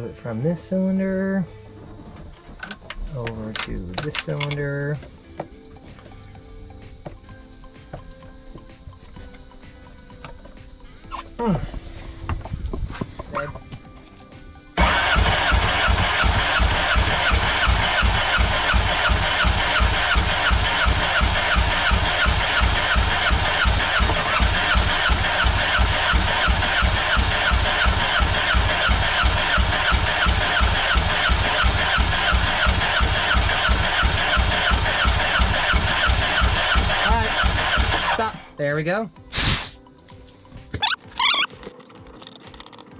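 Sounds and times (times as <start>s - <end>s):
starter cranking boat engine: 14.8s - 38.4s.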